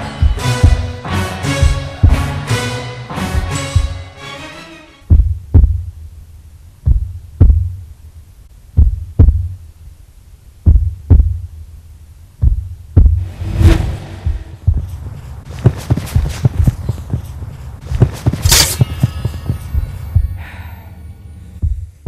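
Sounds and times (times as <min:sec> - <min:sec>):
trailer music: 0:00.0 - 0:05.1, 0:13.2 - 0:14.9
heartbeat thumps: 0:00.1 - 0:01.0, 0:01.6 - 0:02.4, 0:03.4 - 0:04.0, 0:05.0 - 0:06.1, 0:06.8 - 0:07.9, 0:08.7 - 0:09.7, 0:10.6 - 0:11.6, 0:12.4 - 0:20.4, 0:21.6 - 0:22.0.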